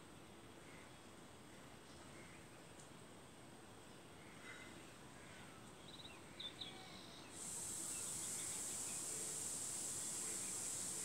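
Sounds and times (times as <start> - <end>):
faint background noise: 0.0 - 11.0
steady high hiss: 7.2 - 11.0.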